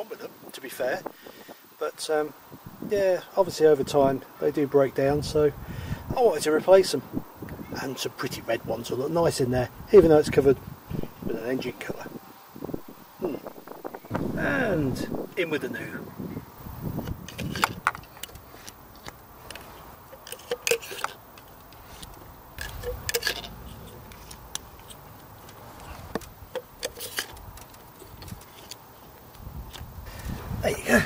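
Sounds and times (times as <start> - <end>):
plastic clicks and knocks: 17.0 - 18.4.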